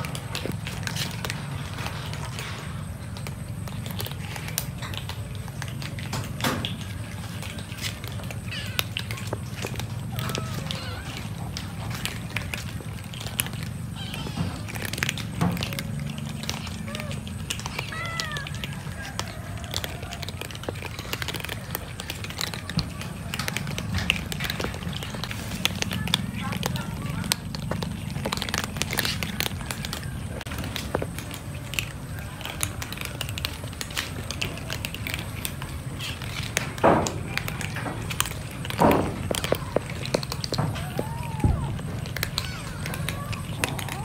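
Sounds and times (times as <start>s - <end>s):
cats crunching dry kibble: 0.0s - 44.0s
cat meowing: 10.1s - 11.3s, 16.6s - 18.9s.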